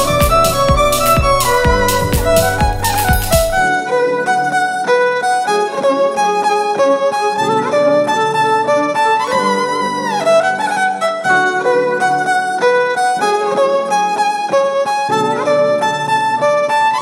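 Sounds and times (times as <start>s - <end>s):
backing accompaniment: 0.0s - 5.0s
violin melody: 0.0s - 17.0s.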